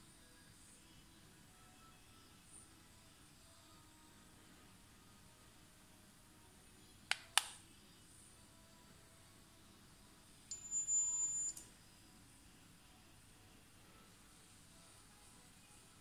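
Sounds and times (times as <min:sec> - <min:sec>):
high electronic beep: 0:10.5 - 0:11.6.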